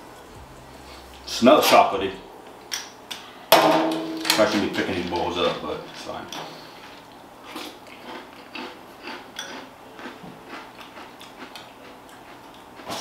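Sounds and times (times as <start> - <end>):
person chewing crunchy cereal: 6.6 - 13.0.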